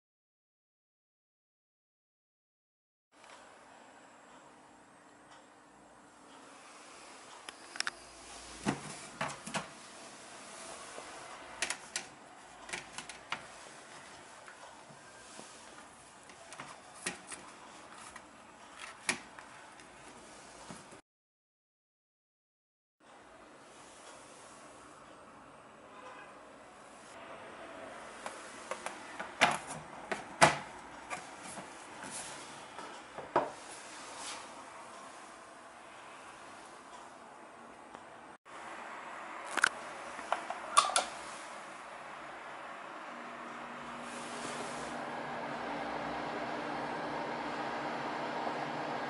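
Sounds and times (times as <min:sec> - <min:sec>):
plastic trays clicking and knocking: 0:11.6 - 0:13.5.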